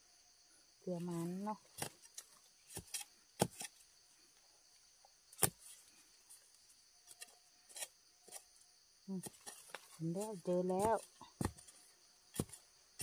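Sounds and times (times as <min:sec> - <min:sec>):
insects chirring: 0:00.0 - 0:13.0
spade chopping into earth: 0:02.6 - 0:03.8, 0:05.3 - 0:05.7, 0:12.3 - 0:13.0.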